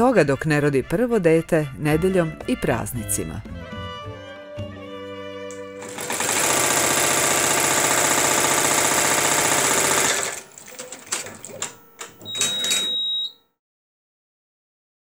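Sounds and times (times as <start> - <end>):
embroidery machine stitching: 5.8 - 13.0
clicks and knocks: 10.6 - 12.9
steady high beep: 12.2 - 13.4.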